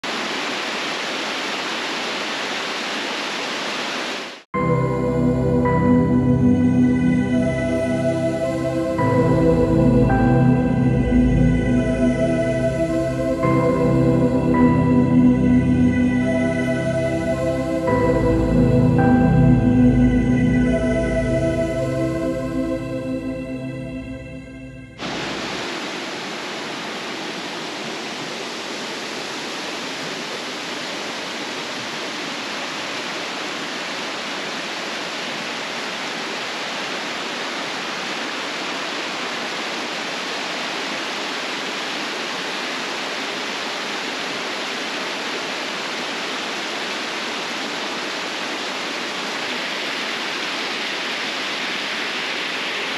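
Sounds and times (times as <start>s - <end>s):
small waterfall rushing: 0.0s - 4.5s, 25.0s - 52.9s.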